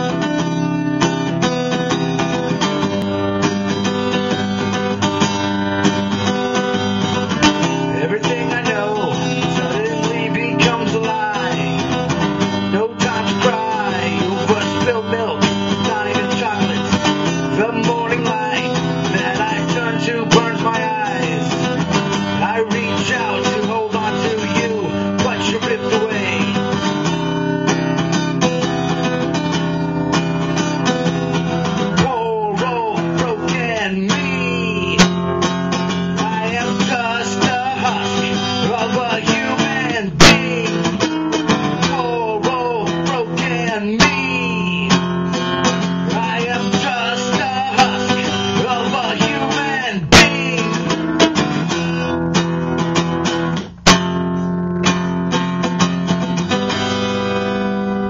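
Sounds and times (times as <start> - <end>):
strummed acoustic guitar: 0.0 - 58.0
man singing: 6.2 - 27.4, 30.8 - 52.8.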